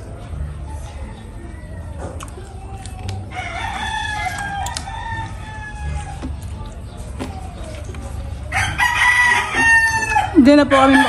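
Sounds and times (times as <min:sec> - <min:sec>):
rooster crowing: 0:08.5 - 0:11.0.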